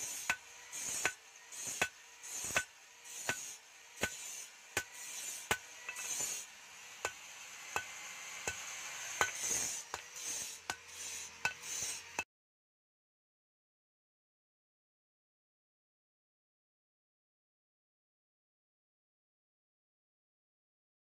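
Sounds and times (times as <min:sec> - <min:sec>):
hammer striking steel: 0:00.0 - 0:12.2
scraping hiss: 0:00.0 - 0:12.2.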